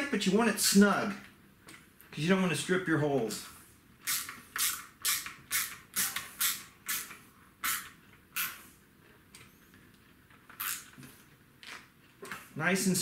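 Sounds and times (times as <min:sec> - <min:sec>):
wood screw creaking: 0:10.5 - 0:11.0.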